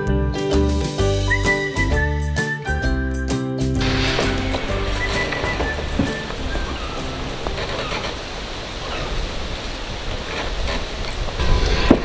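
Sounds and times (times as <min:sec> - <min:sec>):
background music: 0:00.0 - 0:08.1
steady hiss: 0:03.8 - 0:12.0.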